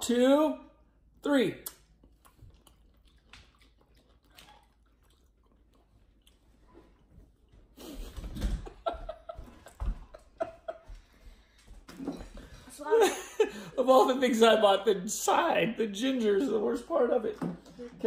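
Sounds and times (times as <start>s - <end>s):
people chewing: 1.6s - 8.2s.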